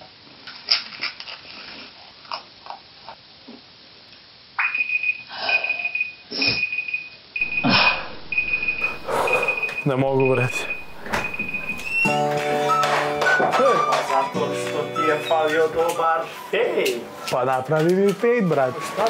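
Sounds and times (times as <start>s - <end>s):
high steady tone: 7.4s - 12.3s.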